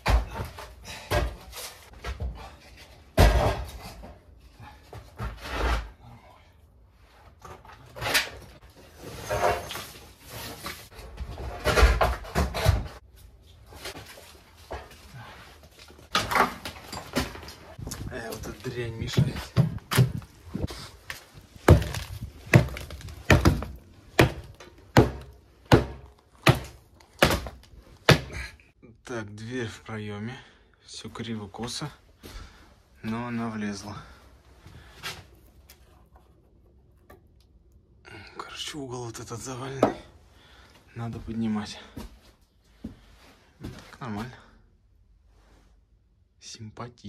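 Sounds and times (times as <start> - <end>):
hammer striking rubble: 21.6 - 28.4.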